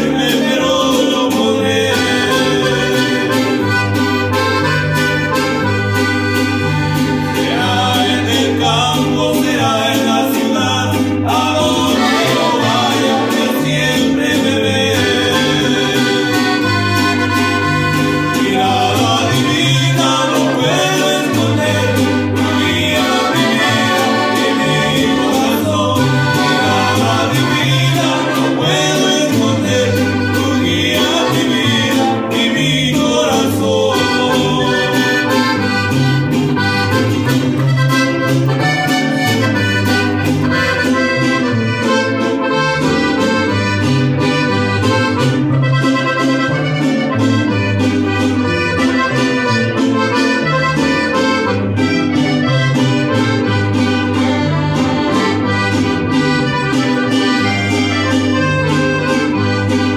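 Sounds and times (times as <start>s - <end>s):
man singing: 0.0s - 3.7s, 7.3s - 16.7s, 18.3s - 35.7s
accordion: 0.0s - 59.9s
strummed guitar: 0.0s - 59.9s
upright bass: 0.0s - 59.9s.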